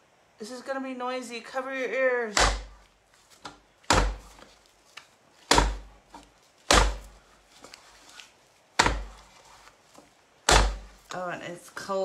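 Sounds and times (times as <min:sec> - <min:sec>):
clay block thudding on wheel: 0:02.3 - 0:02.8, 0:03.4 - 0:04.5, 0:05.4 - 0:07.2, 0:08.8 - 0:09.3, 0:10.4 - 0:11.3.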